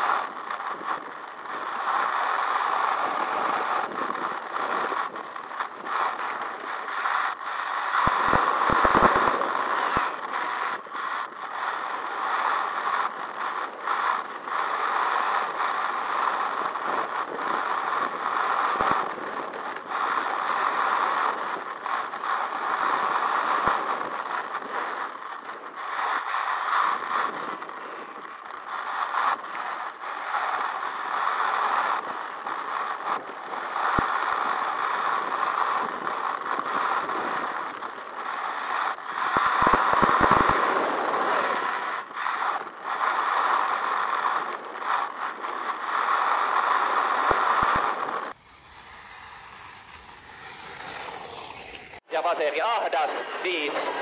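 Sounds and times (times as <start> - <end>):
rc car drivetrain noise: 48.4 - 52.0.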